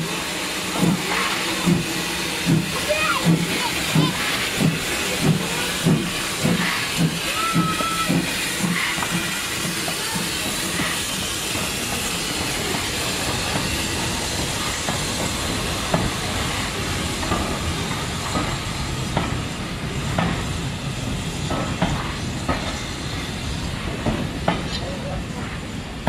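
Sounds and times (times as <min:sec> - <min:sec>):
steam locomotive hissing: 0:00.0 - 0:26.0
train wagons rolling by: 0:00.0 - 0:26.0.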